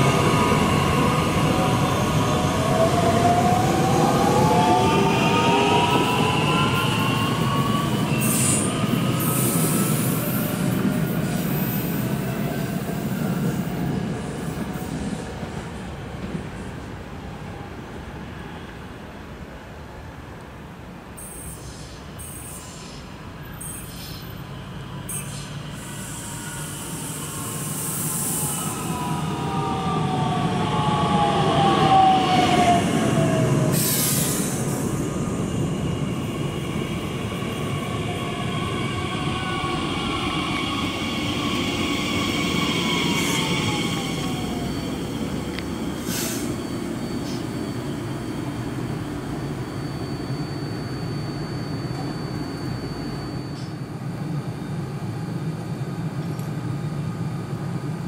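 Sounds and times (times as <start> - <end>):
standing train hum: 0.0 - 58.0
train rolling noise: 0.0 - 58.0
train motor whine: 36.0 - 53.8.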